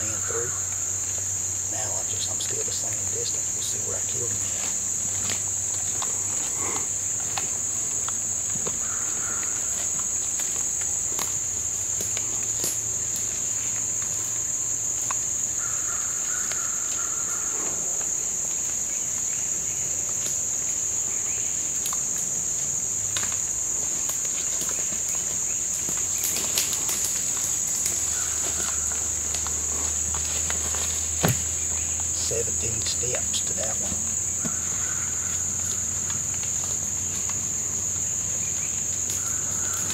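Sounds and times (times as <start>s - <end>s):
insects chorus: 0.0s - 39.9s
footsteps crunching dry leaves: 3.9s - 6.6s, 22.6s - 32.1s.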